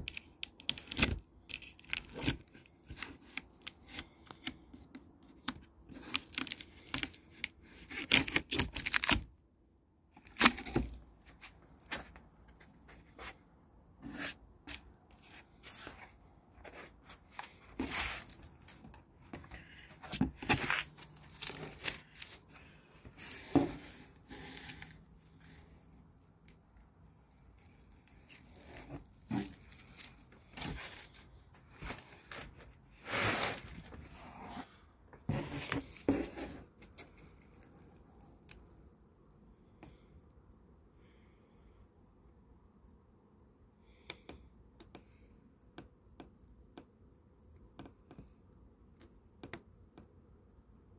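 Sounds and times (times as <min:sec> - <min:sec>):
packing tape tearing: 0:00.0 - 0:03.7, 0:05.9 - 0:09.3, 0:10.2 - 0:11.0
cardboard scraping and rustling: 0:10.2 - 0:25.9, 0:28.0 - 0:37.1.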